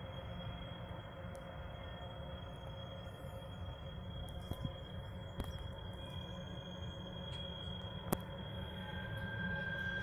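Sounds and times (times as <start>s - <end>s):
low rumble and hiss: 0.0s - 10.0s
faint high-pitched tone: 8.5s - 10.0s.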